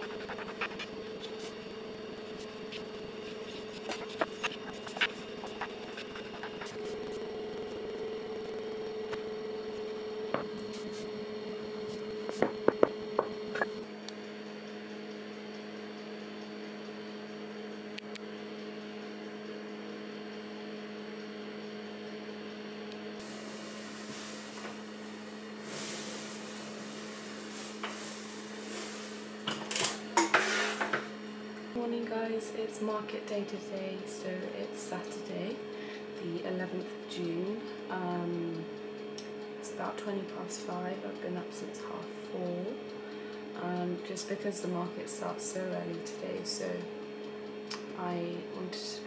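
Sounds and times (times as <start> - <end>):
electrical hum of appliances: 0.0 - 49.0
steady hiss: 23.2 - 29.5.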